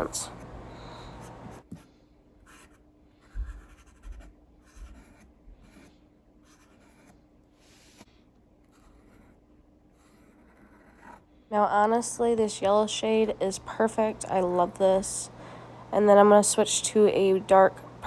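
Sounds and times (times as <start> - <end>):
marker tip scratching canvas: 2.5 - 11.2.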